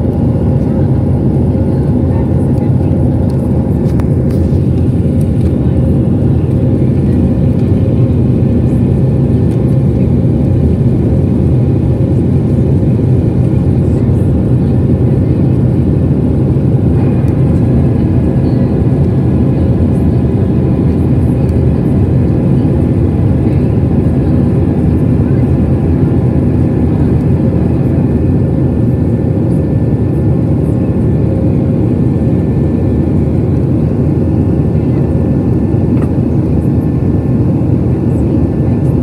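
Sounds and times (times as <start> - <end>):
airplane cabin engine roar: 0.0 - 39.0
faint hum: 0.0 - 39.0.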